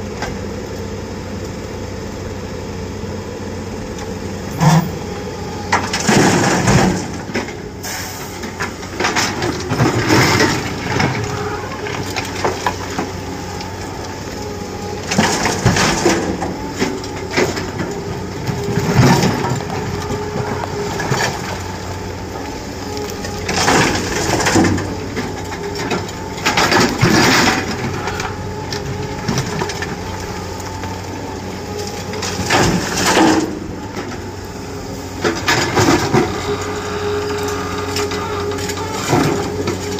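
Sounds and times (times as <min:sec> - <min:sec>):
diesel engines running: 0:00.0 - 0:39.9.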